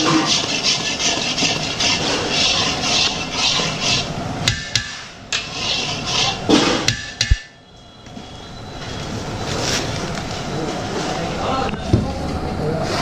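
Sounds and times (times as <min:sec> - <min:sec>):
metal spoon scraping thick mixture: 0:00.0 - 0:07.3.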